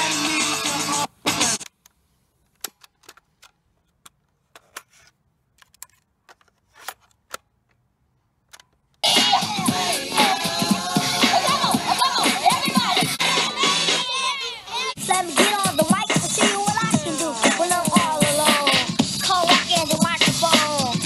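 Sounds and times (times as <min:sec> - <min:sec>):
music from cassette radio: 0:00.0 - 0:01.6, 0:09.0 - 0:21.0
plastic clicks of cassette keys: 0:01.6 - 0:07.8, 0:08.4 - 0:09.0.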